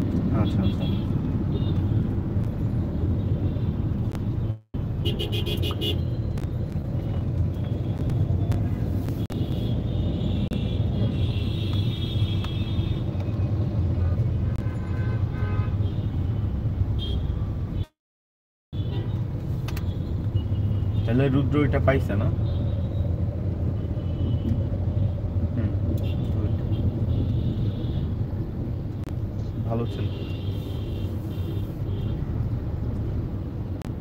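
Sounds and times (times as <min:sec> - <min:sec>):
vehicle horns honking: 0:05.0 - 0:06.2, 0:09.3 - 0:13.1, 0:14.5 - 0:16.3, 0:17.0 - 0:17.9.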